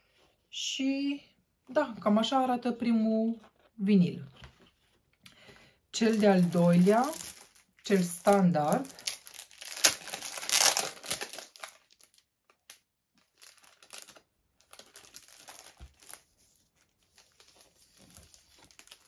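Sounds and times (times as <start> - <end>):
plastic sheets rustling and crinkling: 6.0 - 19.0.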